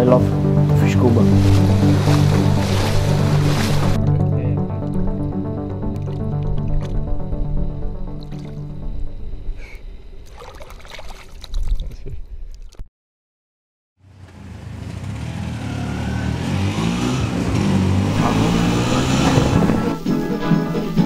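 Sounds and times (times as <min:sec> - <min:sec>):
music: 0:00.0 - 0:09.8, 0:17.7 - 0:21.0
water splashing and trickling: 0:00.8 - 0:04.1, 0:08.1 - 0:08.6, 0:10.2 - 0:12.8
motor scooter engine: 0:14.0 - 0:20.0
street traffic noise: 0:14.0 - 0:20.0.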